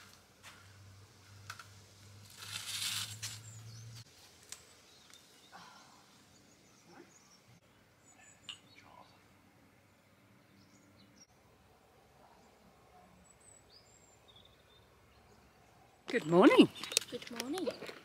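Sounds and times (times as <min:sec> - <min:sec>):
small bird chirps: 0:06.3 - 0:09.3.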